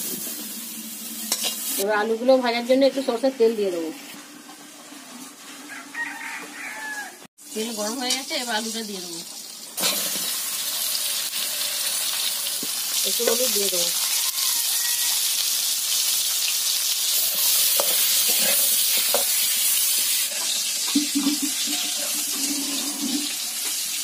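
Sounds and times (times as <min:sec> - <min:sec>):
potato wedges sizzling in oil: 0:00.0 - 0:24.0
metal spatula scraping a pan: 0:01.2 - 0:01.8, 0:17.2 - 0:23.8.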